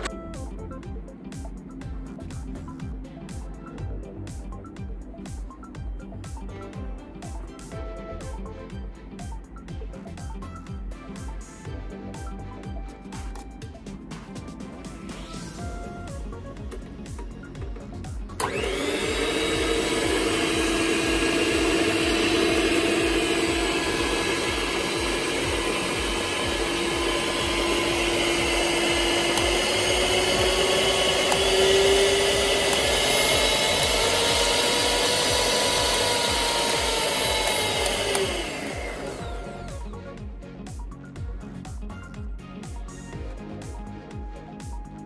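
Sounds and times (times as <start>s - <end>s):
stand mixer motor whining: 16.2s - 40.2s
mixer switch click: 22.6s - 39.2s.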